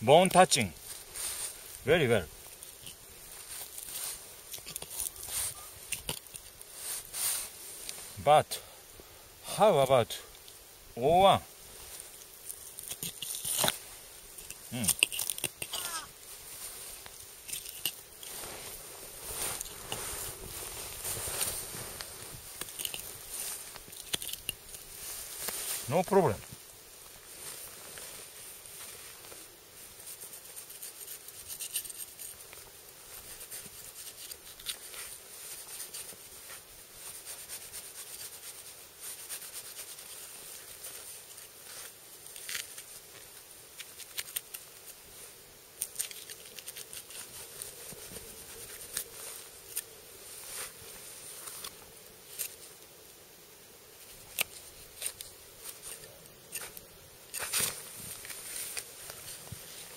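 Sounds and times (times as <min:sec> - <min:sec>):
knife scraping carcass: 0:03.6 - 0:06.6, 0:12.5 - 0:13.8, 0:14.4 - 0:16.1, 0:22.6 - 0:24.8, 0:30.4 - 0:32.4, 0:33.4 - 0:36.6, 0:45.8 - 0:47.4, 0:54.1 - 0:59.4
knife slicing and scraping: 0:12.8 - 0:13.8
gloved hands rubbing fur: 0:15.4 - 0:26.2, 0:27.1 - 0:45.3, 0:46.1 - 0:52.7.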